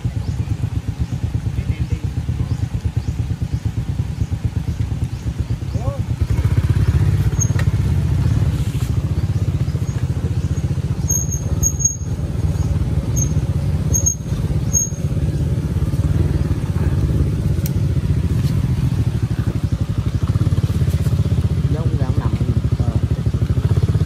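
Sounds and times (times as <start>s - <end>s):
motorbike engine running: 0.0s - 24.0s
short high squeaks: 11.0s - 12.2s, 13.1s - 15.1s.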